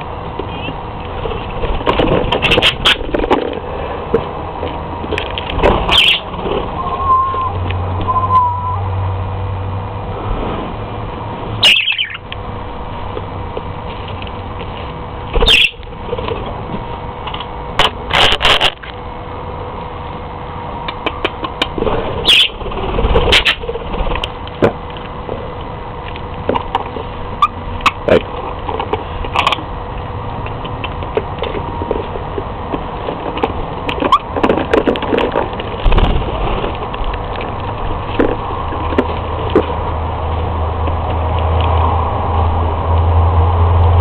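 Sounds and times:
faint steady hum: 0:00.0 - 0:44.0
budgerigars chirping: 0:05.9 - 0:06.3, 0:11.6 - 0:12.2, 0:15.4 - 0:15.8, 0:22.2 - 0:22.6, 0:23.3 - 0:23.6.

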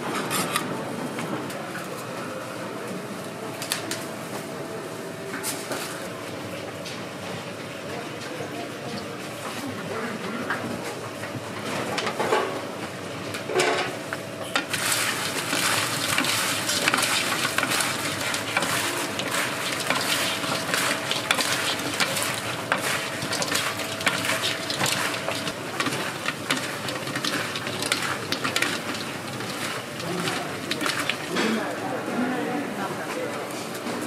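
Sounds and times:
metal utensils scraping and clattering: 0:14.6 - 0:31.7
chicken frying crackling: 0:14.6 - 0:31.8.

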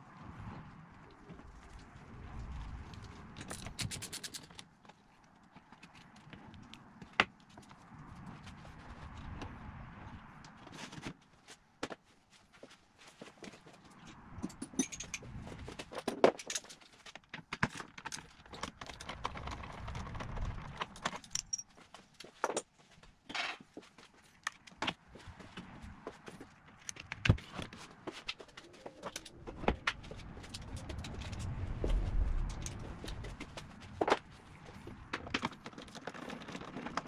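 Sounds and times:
metal tools clinking and rattling: 0:14.4 - 0:15.3, 0:15.9 - 0:17.1, 0:20.8 - 0:22.7.

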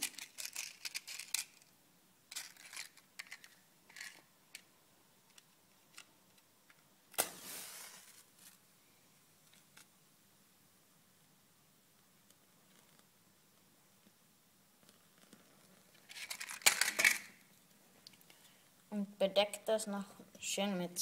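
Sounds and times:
match striking and flaring: 0:07.1 - 0:08.3.

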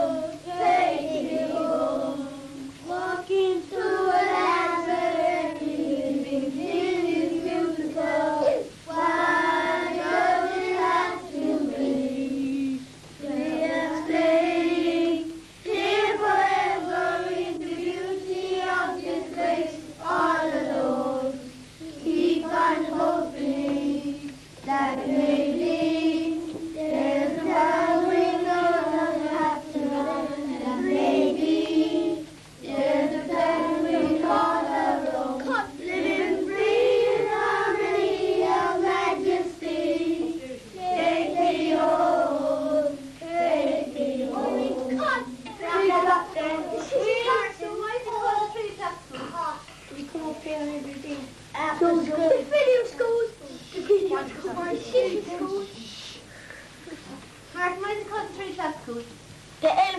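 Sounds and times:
children singing: 0:00.0 - 0:49.3.

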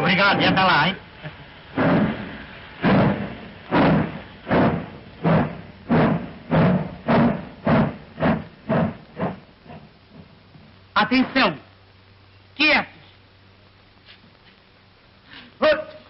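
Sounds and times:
steam locomotive chuffing: 0:01.6 - 0:10.3.

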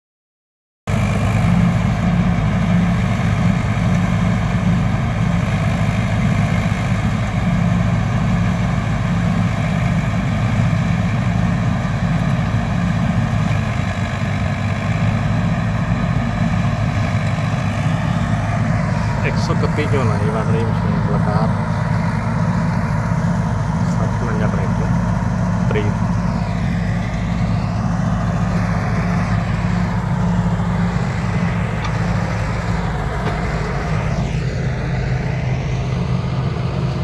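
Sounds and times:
combine harvester engine drone: 0:00.9 - 0:37.0
harvesting machinery hum: 0:00.9 - 0:37.0.

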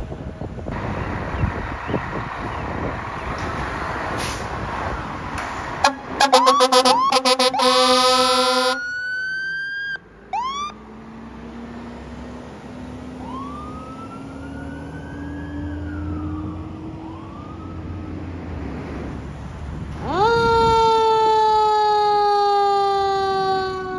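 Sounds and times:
diesel engine rumble: 0:00.0 - 0:20.7
air horn blasts: 0:05.8 - 0:08.8
electronic siren yelps: 0:05.8 - 0:10.8, 0:13.2 - 0:17.9
siren wailing: 0:05.8 - 0:10.8, 0:13.2 - 0:18.3, 0:20.0 - 0:23.9.

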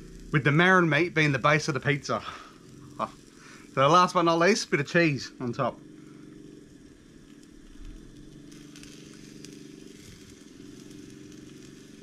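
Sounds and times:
chestnuts sizzling in a pan: 0:00.0 - 0:12.0
steady low hum: 0:00.0 - 0:12.0.

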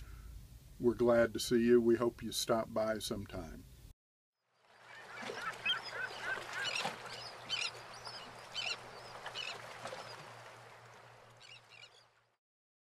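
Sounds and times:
birds calling: 0:04.6 - 0:12.2.

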